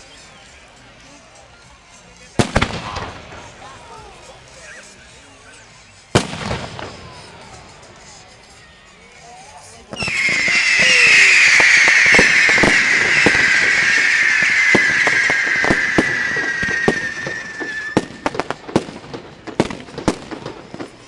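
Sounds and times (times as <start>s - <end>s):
firework crackling reports: 2.3s - 5.4s, 6.0s - 8.6s, 9.4s - 21.0s
firework pops: 2.4s - 3.5s, 6.2s - 7.3s, 9.9s - 21.0s
firework whistle falling in pitch: 10.0s - 18.4s.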